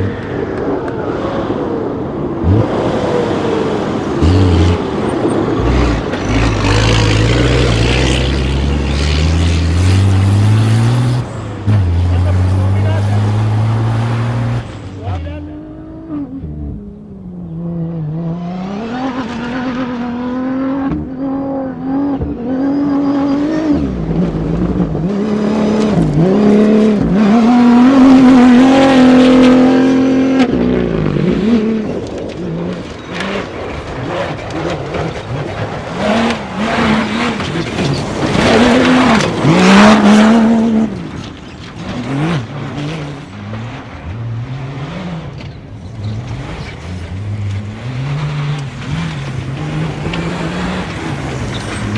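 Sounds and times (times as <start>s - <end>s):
rally car engines revving: 0.0s - 51.9s.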